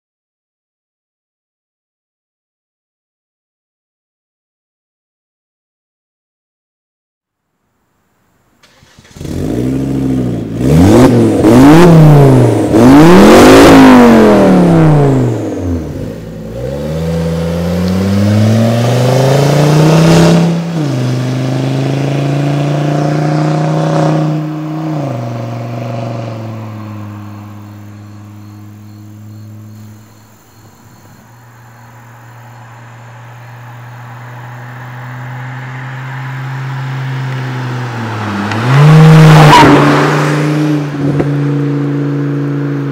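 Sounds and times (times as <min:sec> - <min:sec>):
car engine revving: 0:08.6 - 0:42.9.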